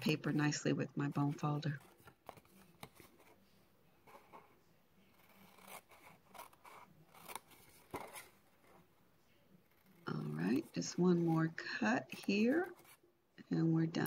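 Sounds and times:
scissors snipping paper: 5.1 - 8.3.

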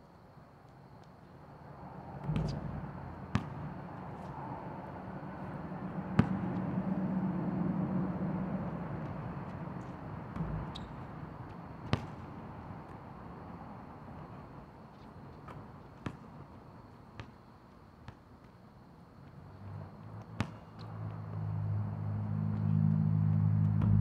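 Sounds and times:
low rumble: 2.2 - 3.3, 10.4 - 11.5, 22.2 - 24.0
basketball hitting rim: 2.2 - 3.8, 10.4 - 12.4
basketball bouncing on asphalt: 2.2 - 4.4, 6.1 - 6.7, 9.0 - 13.4, 14.9 - 21.4, 23.3 - 24.0.

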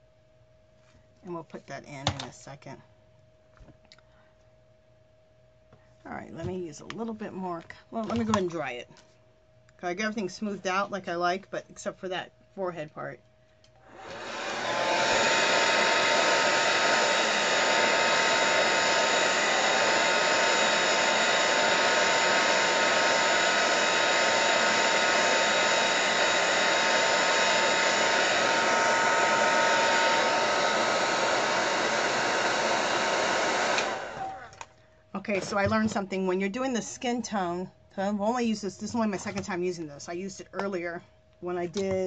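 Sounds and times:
electric dryer blowing air: 13.8 - 36.1.

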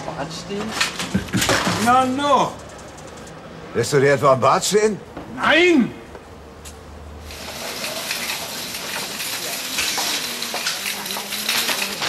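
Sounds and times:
clattering and clinking: 7.3 - 12.0.

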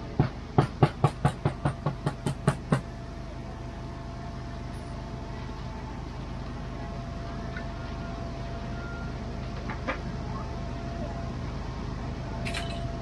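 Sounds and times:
steady machine hum: 0.0 - 13.0.

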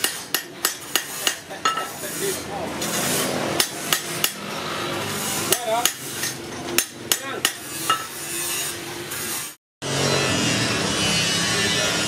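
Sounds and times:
hammer striking steel blade: 0.0 - 2.0, 2.8 - 4.6, 5.3 - 8.7.

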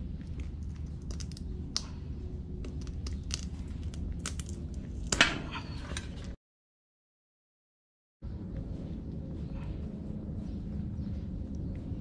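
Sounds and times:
barnacles clicking and cracking: 0.0 - 5.2
low steady rumble: 0.0 - 6.4, 8.2 - 12.0.

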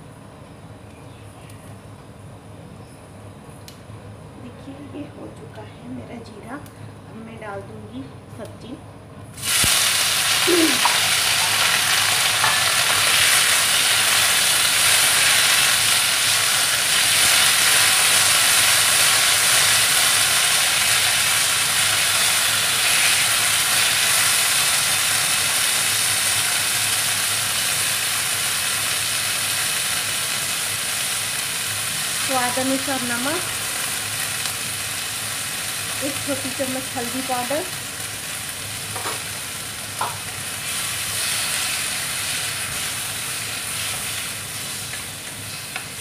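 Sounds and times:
vegetables sizzling in hot oil: 9.3 - 46.0.

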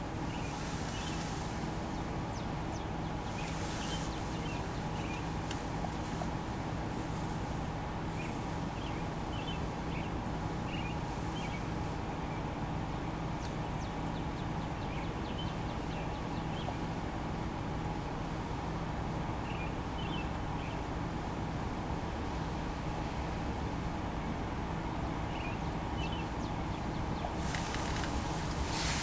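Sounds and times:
birds chirping: 0.0 - 17.1, 25.0 - 29.0
engine hum: 0.0 - 29.0.

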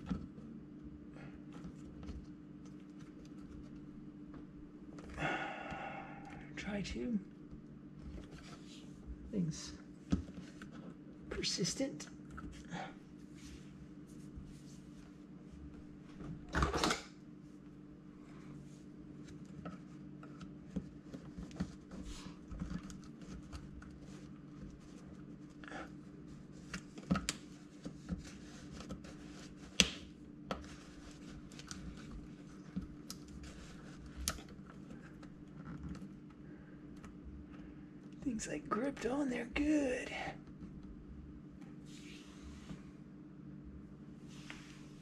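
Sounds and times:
wires and plastic clicking and rustling: 0.0 - 5.2, 10.0 - 12.8, 19.1 - 39.7
steady low hum: 0.0 - 45.0.

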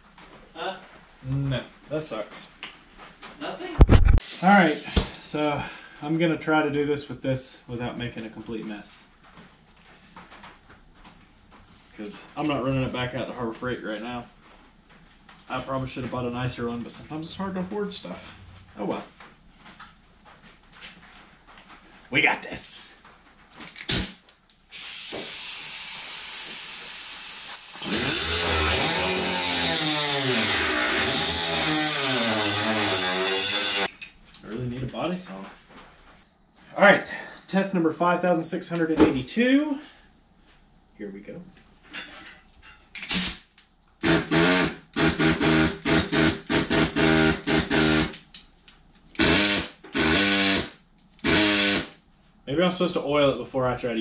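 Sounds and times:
compressed air hiss from saw: 4.2 - 5.2, 24.7 - 27.8
air saw buzzing: 24.7 - 33.9, 43.0 - 43.4, 44.0 - 48.2, 49.2 - 52.0.

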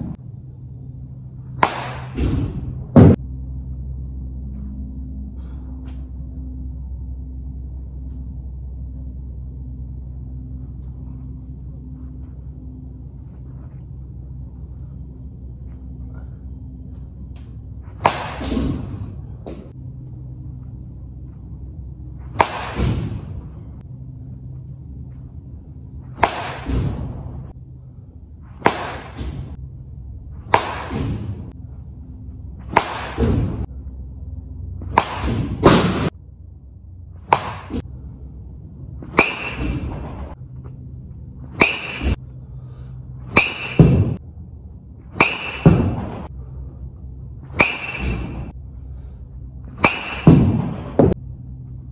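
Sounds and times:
steady low hum: 0.0 - 51.9
baseball bat cracking ball: 1.6 - 3.2, 17.9 - 19.7, 22.3 - 23.3, 26.1 - 27.1, 28.5 - 29.5, 30.4 - 31.4, 32.6 - 33.6, 34.8 - 36.1, 37.2 - 37.8, 39.0 - 40.2, 41.6 - 42.2, 43.3 - 44.2, 45.2 - 46.3, 47.5 - 48.5, 49.8 - 51.2.

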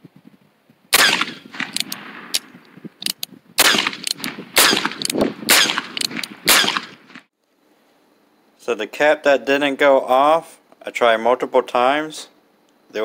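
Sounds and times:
revolver gunshots: 0.9 - 2.5, 3.6 - 7.2
revolver hammer cocking clicks: 1.0 - 7.2.

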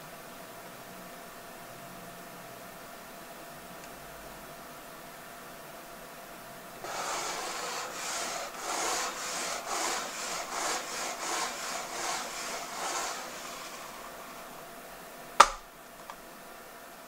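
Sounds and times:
eraser scrubbing a blackboard: 6.8 - 14.8.

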